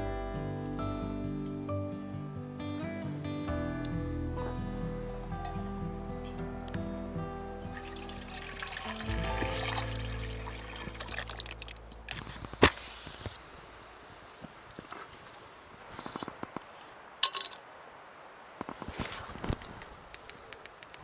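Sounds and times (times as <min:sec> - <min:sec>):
background music: 0:00.0 - 0:12.1.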